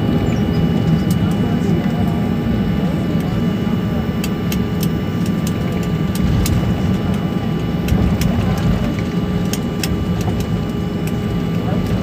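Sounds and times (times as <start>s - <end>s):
aircraft engines idling: 0.0s - 12.0s.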